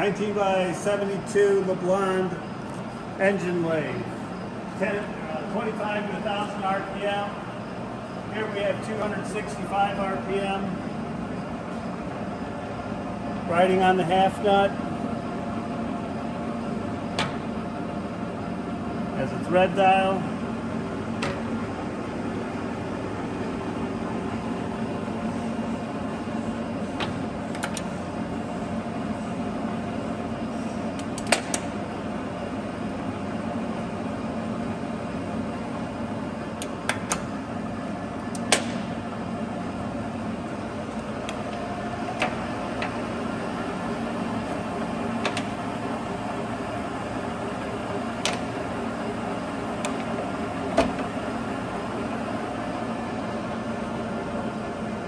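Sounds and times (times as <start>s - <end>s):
lathe running hum: 0.0s - 55.0s
lever clicks and clunks: 17.1s - 17.5s, 21.2s - 21.5s, 27.0s - 28.0s, 31.0s - 31.7s, 36.6s - 37.3s, 38.3s - 39.0s, 41.2s - 43.0s, 45.2s - 45.6s, 48.2s - 48.5s, 49.8s - 51.1s.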